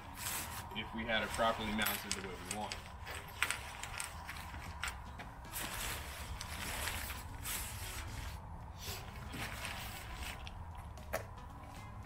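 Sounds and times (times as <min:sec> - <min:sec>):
tent canvas rustling: 0:05.4 - 0:10.7.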